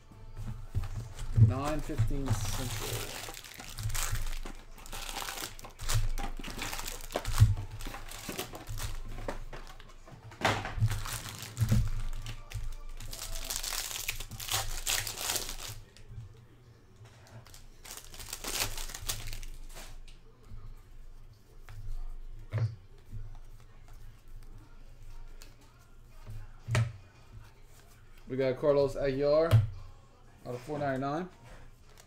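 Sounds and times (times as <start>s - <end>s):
foil packs crinkling and rustling: 0.5s - 16.1s, 17.3s - 20.0s.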